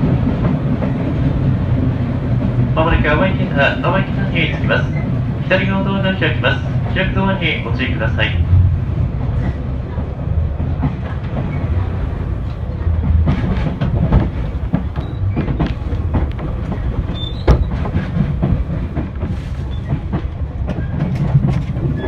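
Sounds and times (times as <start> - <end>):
train interior rumble: 0.0 - 22.0
wheels clacking over rail joints: 9.2 - 22.0.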